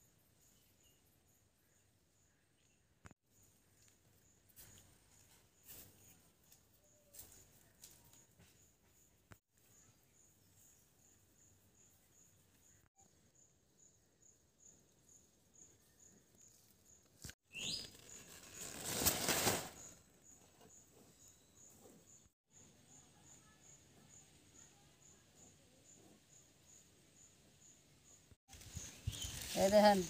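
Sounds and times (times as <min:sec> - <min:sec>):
rustling noise: 0:17.2 - 0:22.0, 0:28.5 - 0:30.0.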